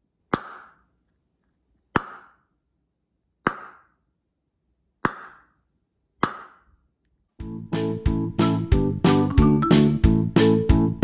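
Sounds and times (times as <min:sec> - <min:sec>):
sharp hollow pops: 0:00.2 - 0:01.0, 0:01.9 - 0:02.6, 0:03.4 - 0:04.1, 0:05.0 - 0:06.8.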